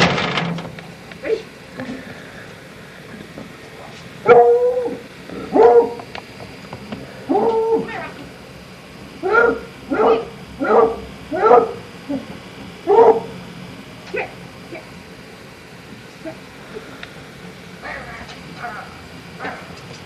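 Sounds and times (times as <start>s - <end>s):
dog barking: 4.2s - 6.0s, 9.2s - 11.8s, 12.8s - 13.3s, 19.4s - 19.7s.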